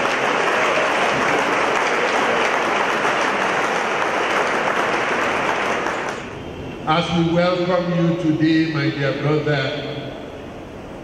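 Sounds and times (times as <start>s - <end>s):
crowd applauding: 0.0s - 6.4s.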